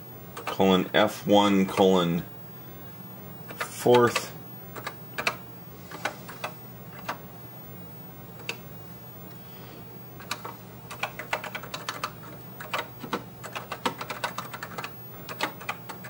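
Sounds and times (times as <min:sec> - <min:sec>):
steady low hum: 0:00.0 - 0:16.0
keyboard typing: 0:00.4 - 0:00.6, 0:03.5 - 0:07.2, 0:08.4 - 0:08.6, 0:10.2 - 0:16.0.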